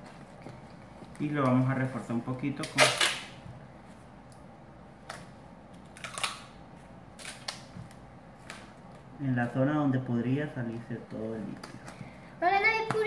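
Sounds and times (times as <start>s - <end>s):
duct tape tearing: 2.6s - 3.3s, 5.9s - 6.5s.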